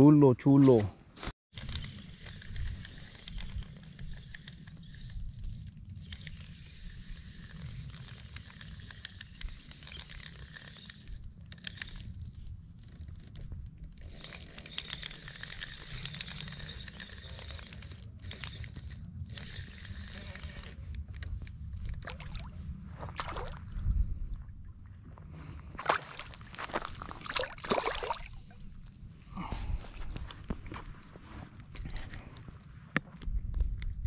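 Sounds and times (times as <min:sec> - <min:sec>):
wind on microphone: 0:18.3 - 0:25.8, 0:33.1 - 0:34.0.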